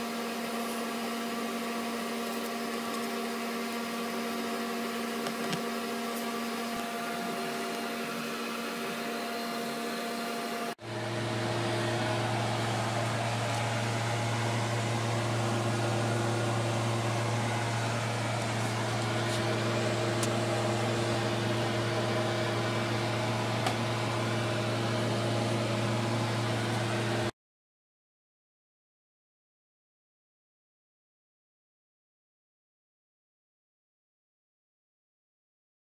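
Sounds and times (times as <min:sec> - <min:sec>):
mechanical hum of fixed tones: 0:00.0 - 0:27.3
low strong steady hum: 0:10.8 - 0:27.3.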